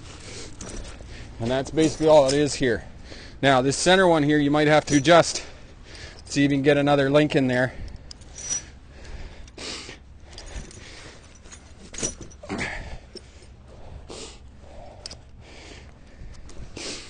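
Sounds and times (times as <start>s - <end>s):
steel chain links clinking: 0.4s - 2.8s, 3.7s - 9.6s, 10.2s - 13.6s
person breathing: 2.9s - 3.4s, 5.4s - 6.3s, 7.7s - 11.5s, 12.6s - 17.0s.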